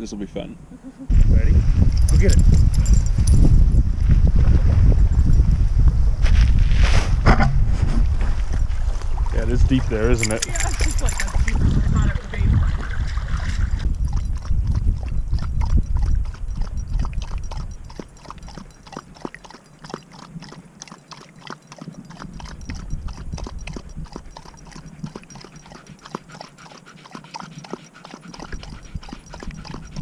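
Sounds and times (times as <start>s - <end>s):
dog lapping water: 8.6s - 30.0s.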